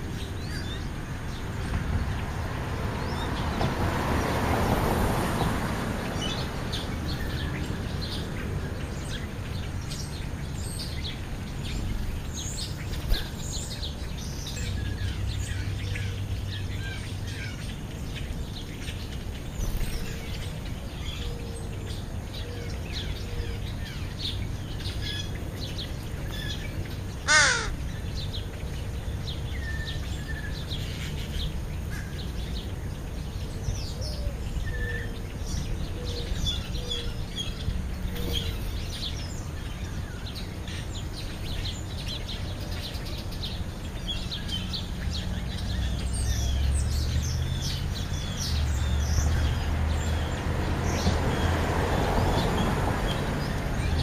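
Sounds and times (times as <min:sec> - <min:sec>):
small birds chirping: 0:00.0 - 0:54.0
crow cawing: 0:27.2 - 0:27.8.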